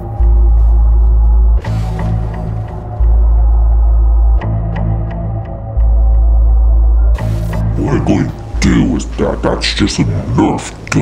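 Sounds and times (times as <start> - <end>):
deep bass drone: 0.0 - 10.3.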